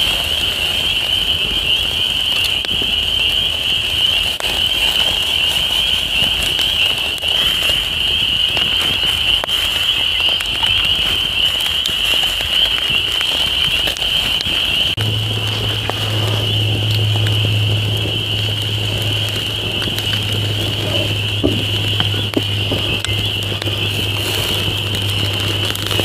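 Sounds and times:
campfire crackling and popping: 0.0 - 26.0
low hum: 13.9 - 26.0.

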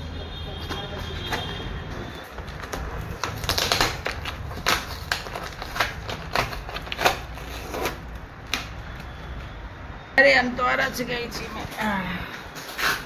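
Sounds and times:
cardboard carton torn open: 2.5 - 8.6.

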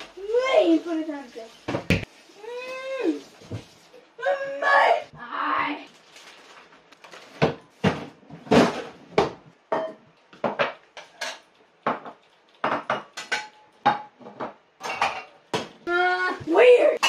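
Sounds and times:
dishes clattering and clinking: 7.3 - 15.8.

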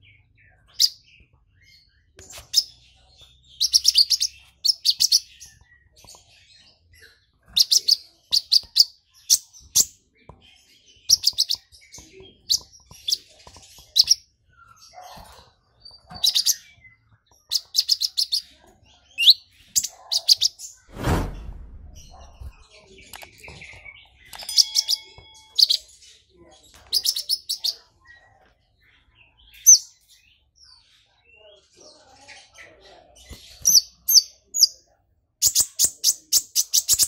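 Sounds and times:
bird chirping and trilling: 0.1 - 6.7
wing flutter: 20.9 - 22.6.

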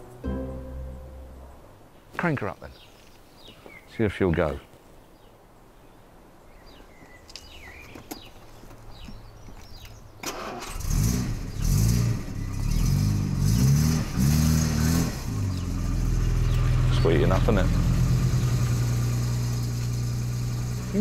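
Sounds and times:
car engine starting and revving: 10.2 - 21.0
engine idling: 10.3 - 21.0.

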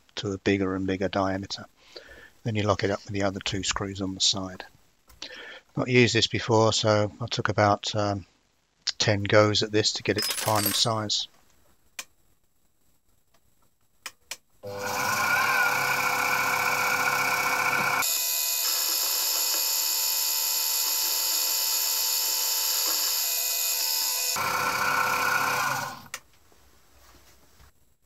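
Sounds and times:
milling machine whine: 14.6 - 26.1.

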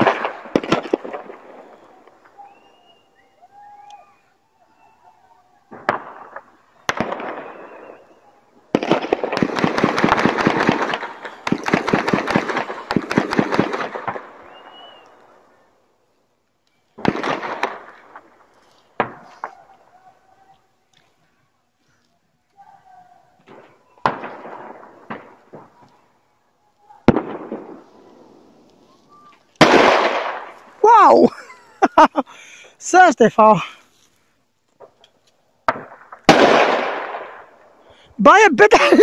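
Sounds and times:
firework bangs: 0.0 - 3.1, 5.7 - 15.6, 16.9 - 19.8, 23.4 - 26.1, 26.8 - 30.8, 34.8 - 38.0
firework crackling: 0.0 - 3.2, 5.7 - 19.8, 26.8 - 39.0.

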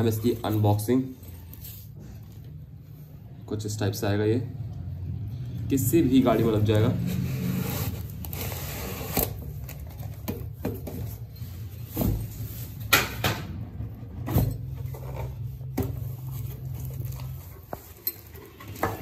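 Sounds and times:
plastic wrap rustling: 14.9 - 18.8.

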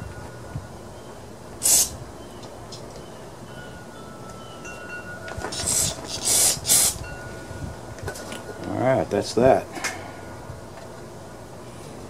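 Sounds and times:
aerosol spray hissing: 1.6 - 1.9, 5.5 - 7.0.

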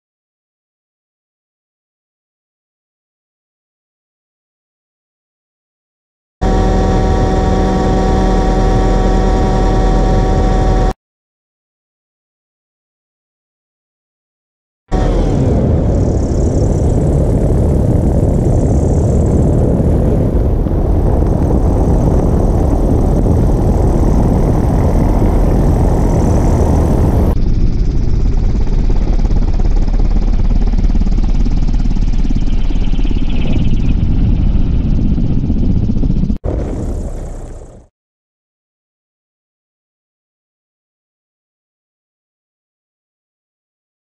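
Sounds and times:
helicopter rotor rumble: 6.4 - 10.9, 14.9 - 37.9.

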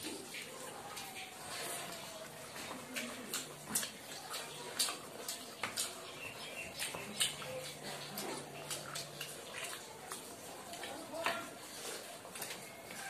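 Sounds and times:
wet chewing: 0.0 - 13.0
lip smacks: 2.8 - 10.9.

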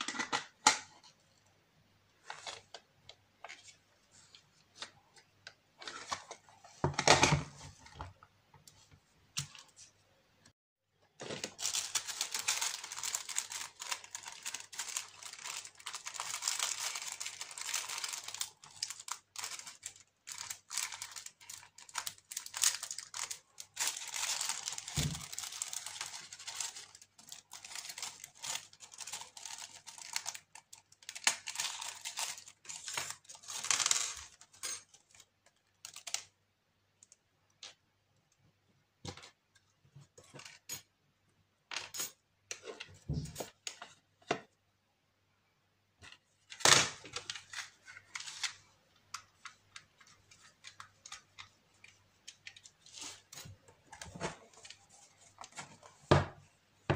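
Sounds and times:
plastic packaging crinkling: 11.2 - 36.3.

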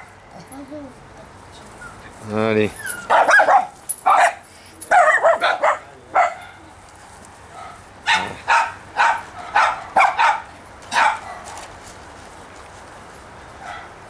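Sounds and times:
small dogs yapping: 2.7 - 6.6, 7.5 - 11.6.

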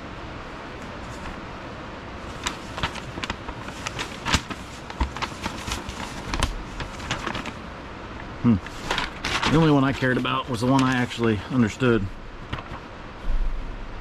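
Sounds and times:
steady hiss: 0.0 - 14.0
paper crinkling and rustling: 1.0 - 1.4, 2.2 - 7.6, 8.7 - 12.9.

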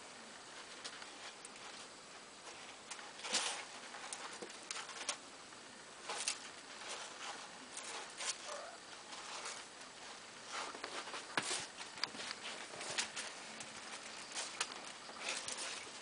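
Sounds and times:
kittens scratching in litter: 0.4 - 5.2, 5.9 - 16.0.

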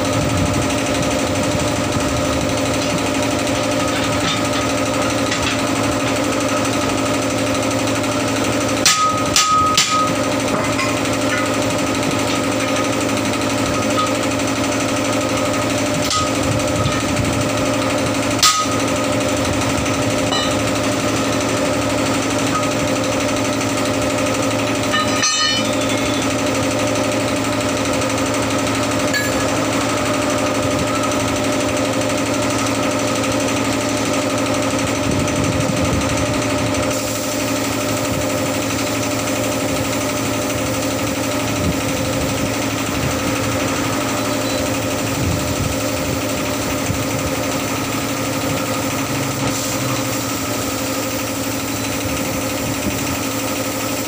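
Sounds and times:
air compressor running: 0.0 - 54.0
sharp metallic clank: 8.8 - 14.4, 18.4 - 18.9, 20.3 - 20.9, 24.8 - 26.5, 29.0 - 29.8.

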